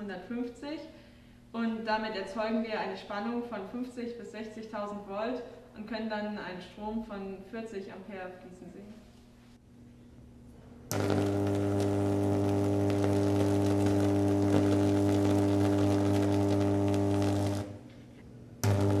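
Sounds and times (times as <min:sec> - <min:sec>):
induction coil buzzing: 0:10.8 - 0:19.0
electric spark crackling: 0:10.9 - 0:17.9, 0:18.6 - 0:19.0.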